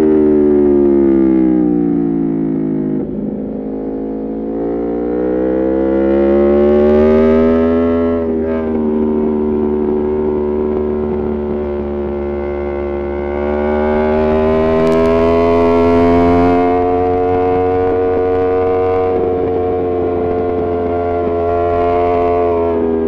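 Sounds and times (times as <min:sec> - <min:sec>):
motorcycle engine revving: 0:00.0 - 0:23.0
exhaust crackling: 0:07.4 - 0:23.0.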